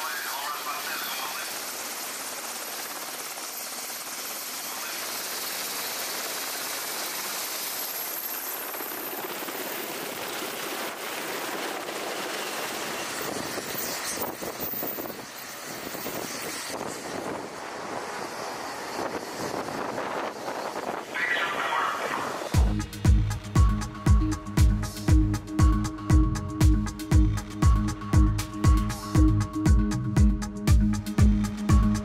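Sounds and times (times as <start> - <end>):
helicopter engines and rotor: 0.0 - 32.0
high turbine whine: 0.0 - 32.0
wind buffeting microphone: 12.6 - 21.2.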